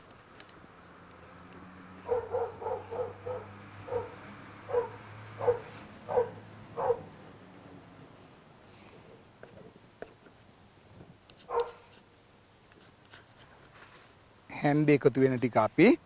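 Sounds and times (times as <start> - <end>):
dog barking: 2.0 - 7.1, 11.5 - 11.9.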